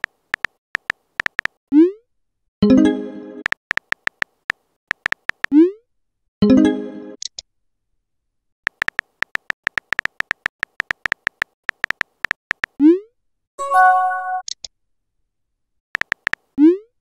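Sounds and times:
smartphone keyboard clicks: 0:00.0 - 0:01.6, 0:03.5 - 0:05.5, 0:08.7 - 0:12.8, 0:16.0 - 0:16.5.

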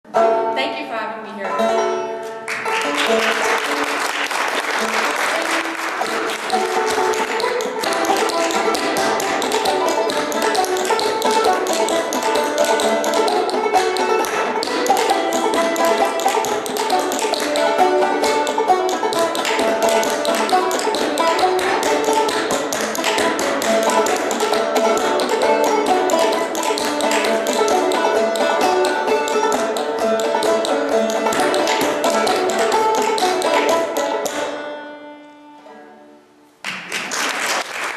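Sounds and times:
banjo tune: 0:00.0 - 0:36.6.

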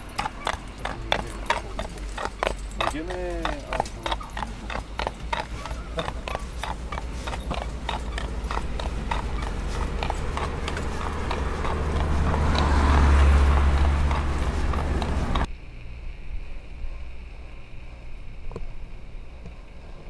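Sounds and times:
hooves clip-clopping on asphalt: 0:00.0 - 0:15.5.

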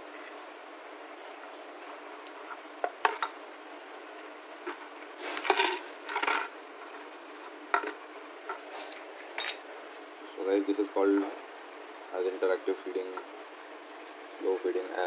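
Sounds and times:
plastic bottle rolling and clattering: 0:04.7 - 0:06.5.

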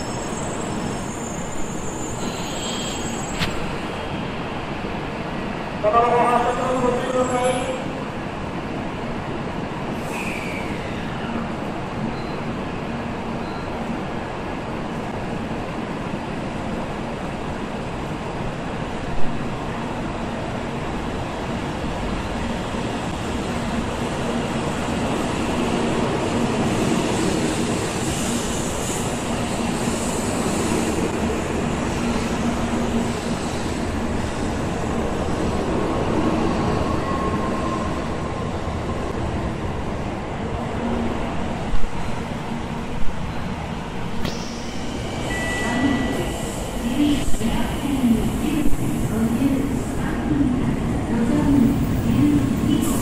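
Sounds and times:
train rushing past with low hum: 0:07.9 - 0:53.0
brief high tone: 0:44.2 - 0:46.6.

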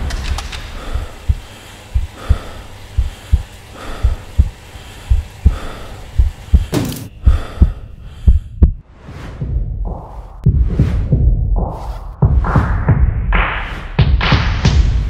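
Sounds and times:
heartbeat: 0:00.0 - 0:08.8, 0:09.4 - 0:15.0
heavy breathing: 0:00.4 - 0:08.8.

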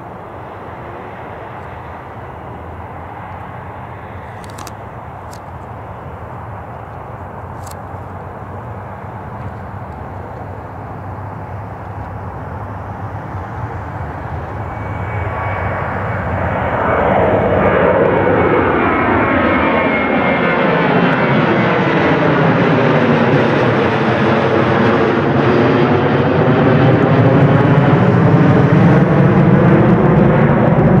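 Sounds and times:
jet airliner passing overhead: 0:00.0 - 0:31.0.

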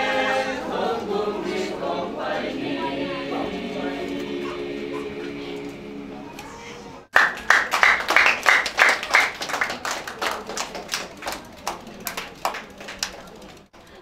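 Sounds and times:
small group applauding: 0:07.1 - 0:13.7.

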